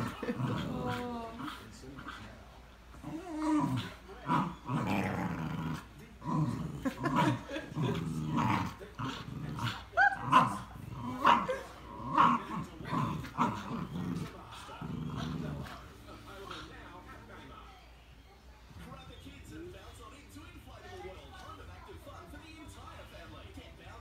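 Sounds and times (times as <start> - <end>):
dogs growling: 0.0 - 17.3.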